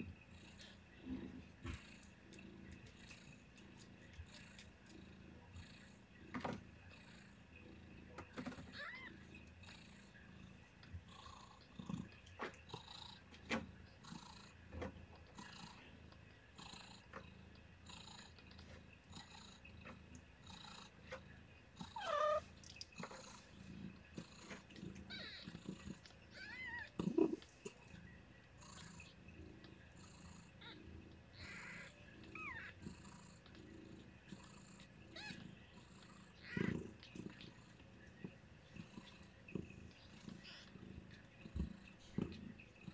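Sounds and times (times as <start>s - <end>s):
cat purring: 0.0s - 42.9s
soft rhythmic wet sounds: 0.0s - 42.9s
kittens squeaking: 8.4s - 9.2s, 21.8s - 23.1s, 24.4s - 27.9s, 30.6s - 33.6s, 35.1s - 35.5s, 36.3s - 37.6s, 40.0s - 42.5s.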